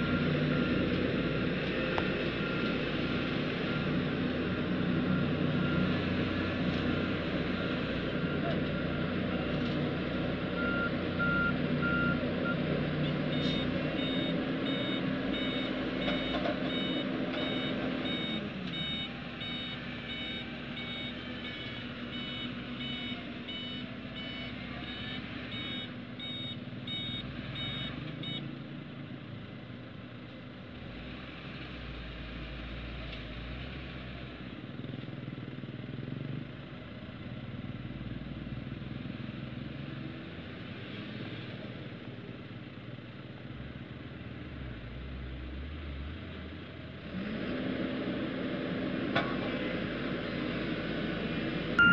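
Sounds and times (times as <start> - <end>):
diesel construction machinery running: 0.0 - 51.9
reversing alarm beeping: 13.3 - 28.4.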